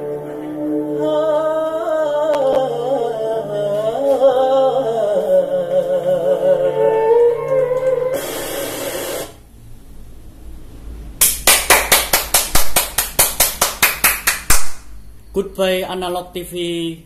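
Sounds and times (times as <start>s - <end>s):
man singing with vibrato: 0.0s - 8.2s
loud static hiss: 6.5s - 17.0s
sharp claps or smacks: 11.2s - 15.0s.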